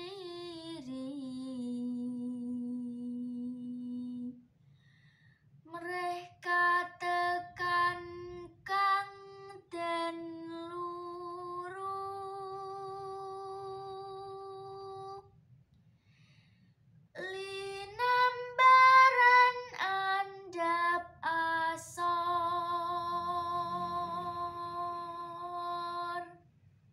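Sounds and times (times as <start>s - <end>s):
woman singing unaccompanied: 0.0s - 4.4s, 5.7s - 15.3s, 17.2s - 26.4s
singer breathing: 4.6s - 5.6s, 15.9s - 16.9s.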